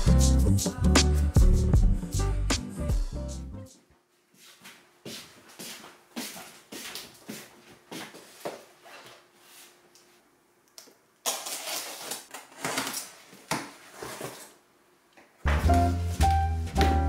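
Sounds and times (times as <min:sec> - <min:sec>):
music: 0:00.0 - 0:03.9, 0:15.4 - 0:17.0
cardboard scraping and rustling: 0:11.4 - 0:14.6.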